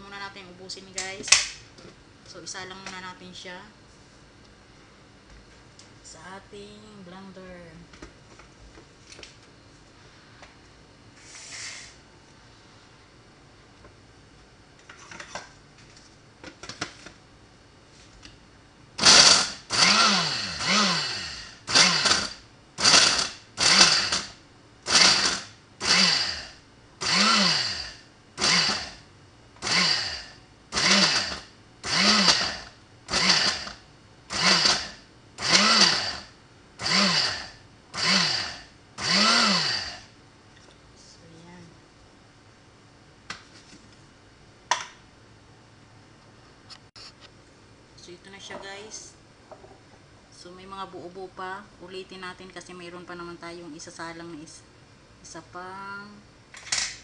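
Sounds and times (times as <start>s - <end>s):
blender whirring in pulses: 19.0s - 29.0s, 29.6s - 40.1s.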